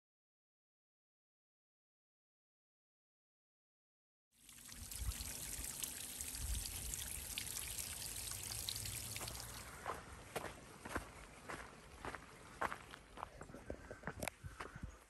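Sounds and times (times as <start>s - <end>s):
stream trickling and splashing: 4.4s - 13.2s
footsteps on a path: 9.1s - 15.0s.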